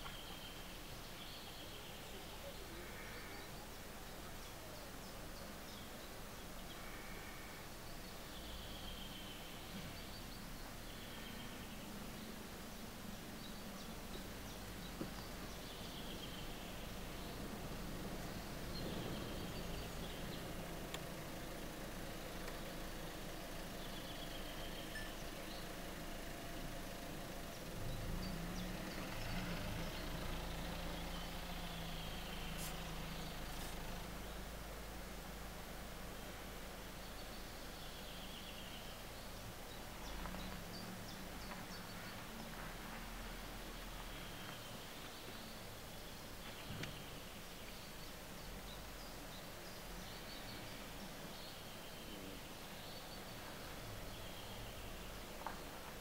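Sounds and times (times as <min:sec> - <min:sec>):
low engine hum: 0:00.0 - 0:56.0
outdoor background hiss: 0:00.0 - 0:56.0
faint high chirps: 0:23.8 - 0:25.8.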